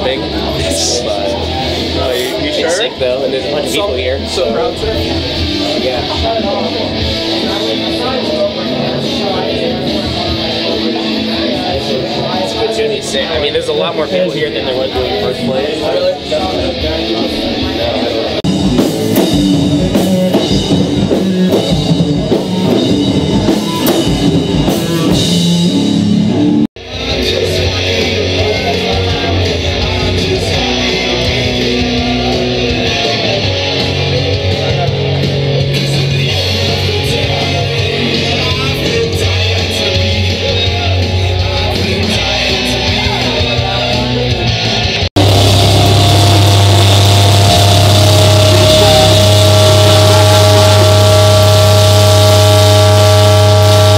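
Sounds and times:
drum kit: 0:00.0 - 0:02.5, 0:18.3 - 0:53.9
electric guitar: 0:00.0 - 0:53.9
steady held drone: 0:45.2 - 0:53.9.

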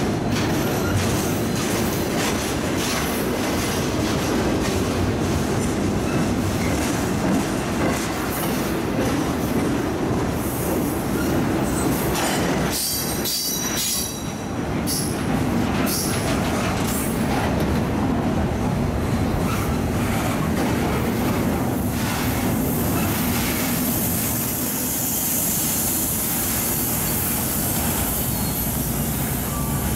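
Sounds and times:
freight train rolling past: 0:00.0 - 0:29.9.

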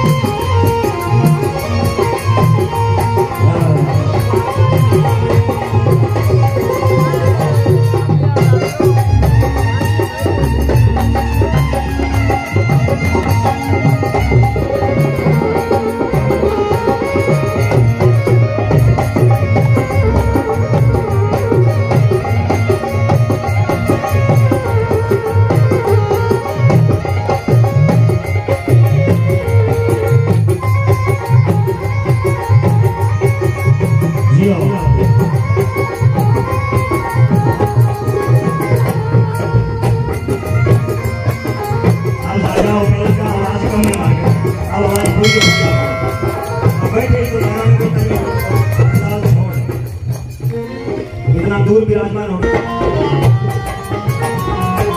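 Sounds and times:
sustained melody instrument: 0:00.0 - 0:27.0, 0:41.1 - 0:49.6
hand drums beating: 0:00.0 - 0:34.4, 0:39.8 - 0:49.9
held melody notes: 0:41.4 - 0:49.5.

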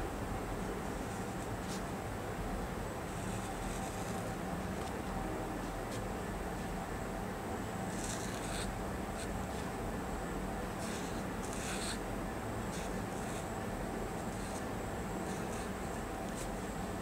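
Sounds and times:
low background noise: 0:00.0 - 0:17.0
marker scratching on paper: 0:03.1 - 0:04.3, 0:07.9 - 0:09.7, 0:10.8 - 0:12.0, 0:12.7 - 0:13.6, 0:14.2 - 0:16.6.

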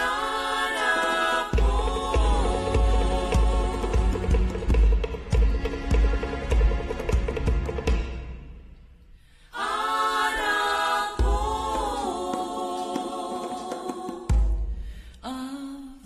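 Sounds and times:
group singing unaccompanied: 0:00.0 - 0:06.5, 0:09.5 - 0:14.7
drumming: 0:00.0 - 0:08.8, 0:10.0 - 0:15.0.

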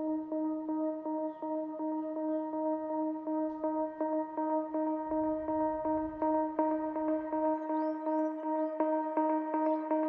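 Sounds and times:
background music with held note: 0:00.0 - 0:10.0.

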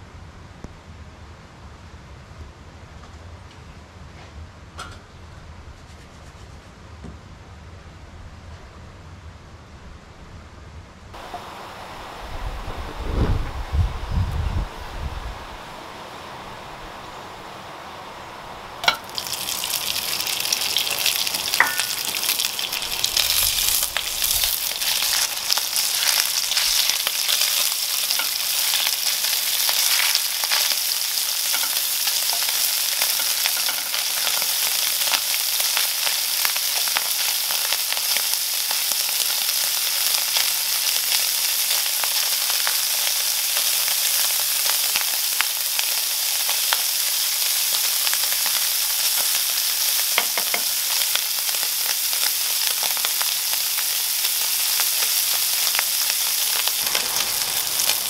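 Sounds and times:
meat sizzling in a pan: 0:18.8 - 0:58.0.

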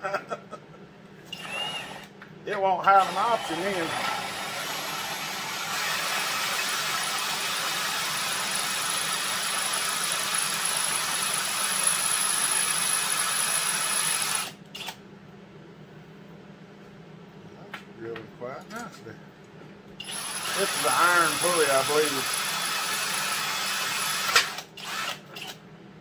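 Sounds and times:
cordless drill squealing into metal: 0:01.3 - 0:02.0.

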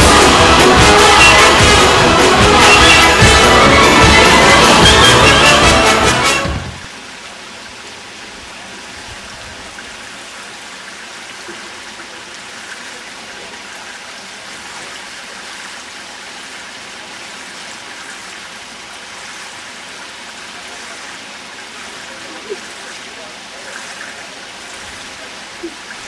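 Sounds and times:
water rushing and trickling: 0:00.0 - 0:26.0.

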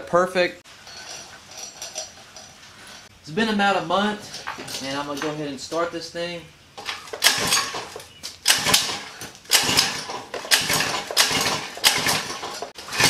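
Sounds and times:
pull-starter rope rasping: 0:06.8 - 0:13.0.

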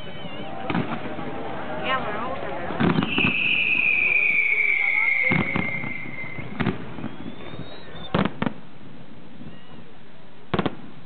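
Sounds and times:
firework bangs: 0:00.0 - 0:09.5, 0:10.5 - 0:11.0
faint rising firework whistle: 0:02.8 - 0:08.3.

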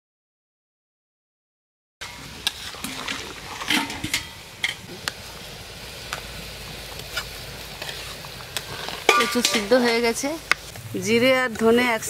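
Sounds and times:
metal spatula scraping pan: 0:02.0 - 0:04.9, 0:07.1 - 0:10.8
curry simmering hiss: 0:02.0 - 0:12.0.

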